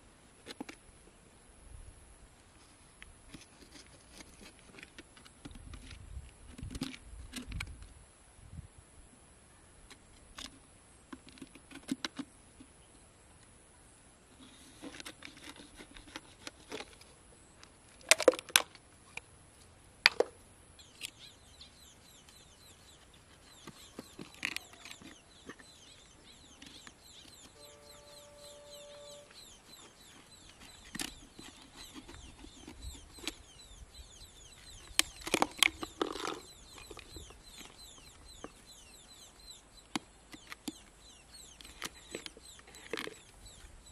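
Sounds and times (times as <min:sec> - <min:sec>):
faint high chirping: 0:20.8 - 0:43.9.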